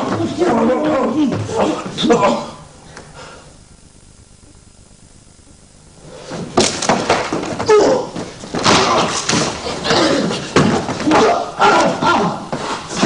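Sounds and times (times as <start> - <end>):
thuds of bodies on mat: 6.3 - 13.0
short grunts: 7.7 - 12.6.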